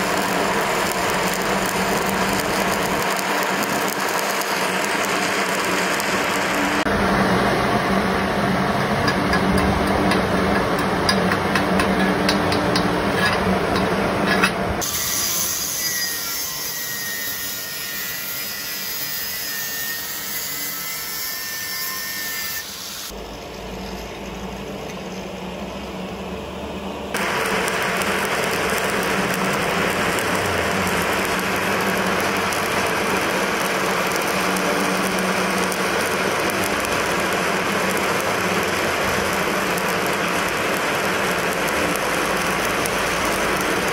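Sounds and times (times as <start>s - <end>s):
loud noise: 0.0s - 15.0s, 25.9s - 43.9s
welding arc burning: 0.0s - 43.9s
angle grinder grinding steel: 8.8s - 23.2s.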